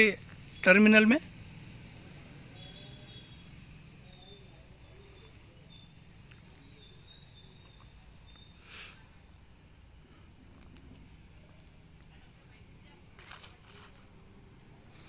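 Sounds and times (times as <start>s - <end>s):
crickets chirring: 0.0s - 15.0s
scratchy rustle: 13.2s - 14.1s.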